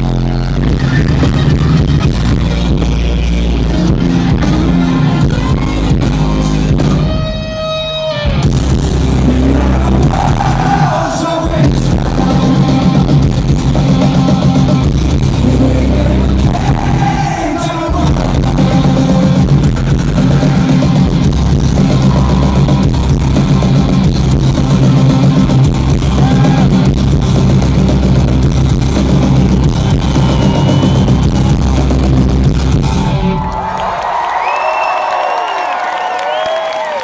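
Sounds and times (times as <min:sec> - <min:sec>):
live rock band playing loudly: 0:00.0 - 0:33.6
crowd cheering and whistling: 0:10.0 - 0:11.7, 0:16.4 - 0:18.2, 0:21.8 - 0:23.1, 0:26.0 - 0:26.9, 0:29.2 - 0:37.0.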